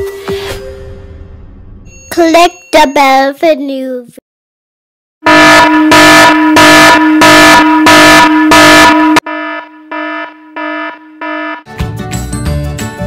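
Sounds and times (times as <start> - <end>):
electronic alarm beeping: 5.4 - 11.6.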